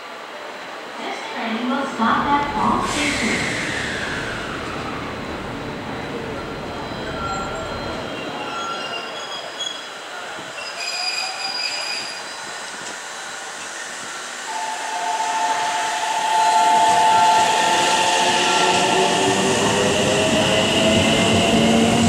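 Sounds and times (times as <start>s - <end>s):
electric train passing: 1.8s - 8.5s, 13.2s - 22.0s
train motor whine: 2.2s - 8.2s, 14.5s - 22.0s.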